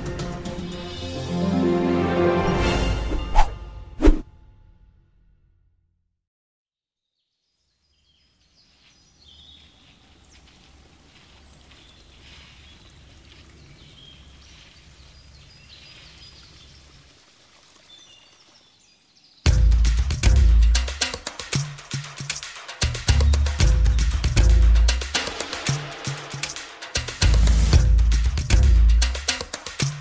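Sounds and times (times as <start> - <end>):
music: 0.0 - 4.9, 19.5 - 30.0
small birds chirping: 7.1 - 19.7
loud drum hit: 19.5 - 21.2, 22.9 - 29.3.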